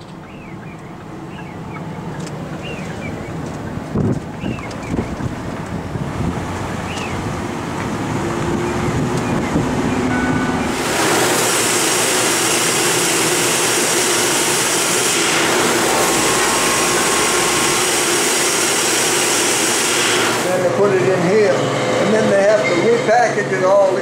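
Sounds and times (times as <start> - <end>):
wind buffeting microphone: 2.4 - 10.1
bottling machine running: 10.6 - 23.0.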